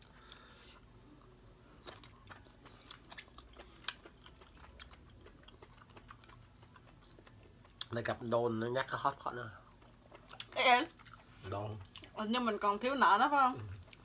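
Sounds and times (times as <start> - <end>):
chewing mushrooms: 1.7 - 12.2, 13.5 - 14.0.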